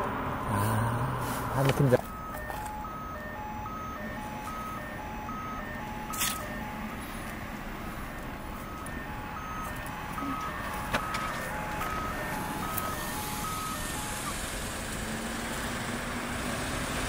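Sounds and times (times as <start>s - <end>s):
steady background noise: 0.0s - 16.0s
electronic two-tone beeping: 1.5s - 6.9s, 8.0s - 14.4s.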